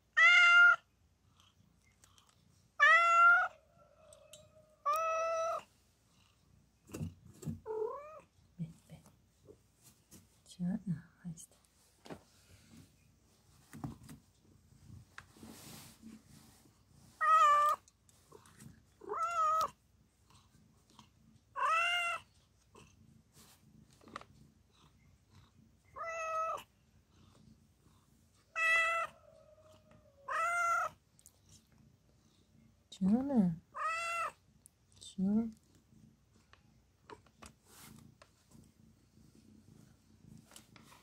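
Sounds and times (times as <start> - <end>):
cat meowing: 0.1 - 0.8, 2.8 - 5.7, 17.2 - 17.8, 19.0 - 19.8, 21.6 - 22.3, 26.0 - 26.7, 28.5 - 31.0, 33.7 - 34.4.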